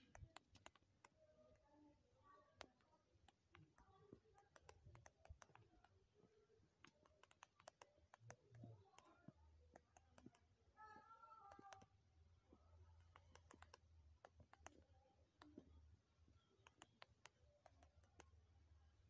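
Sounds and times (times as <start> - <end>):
phone keyboard typing clicks: 0.0 - 1.2, 2.6 - 5.9, 6.8 - 10.4, 11.5 - 11.9, 13.1 - 14.8, 16.5 - 18.2.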